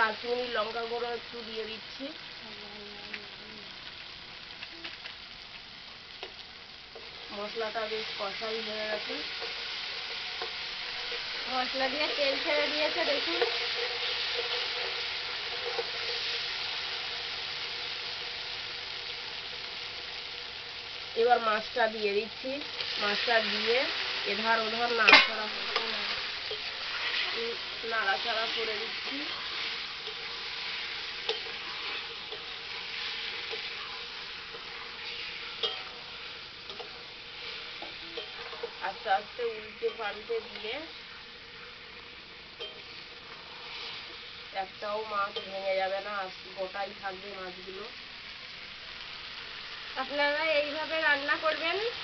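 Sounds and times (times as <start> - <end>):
masala sizzling in hot oil: 0.0 - 52.0
spatula stirring: 22.6 - 44.5
metal spatula clinking on pan: 35.6 - 36.0, 42.6 - 42.9.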